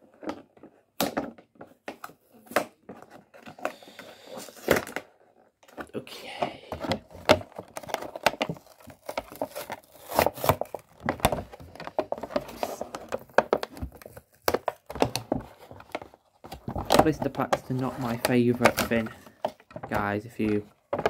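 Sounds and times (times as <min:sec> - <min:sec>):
plastic packaging crinkling: 0:07.0 - 0:19.5.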